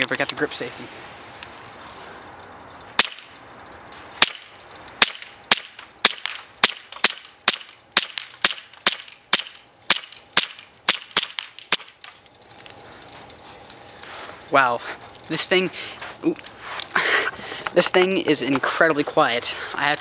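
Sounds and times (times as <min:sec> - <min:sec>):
airsoft pistol shots: 0:03.0 - 0:03.3, 0:04.2 - 0:12.1.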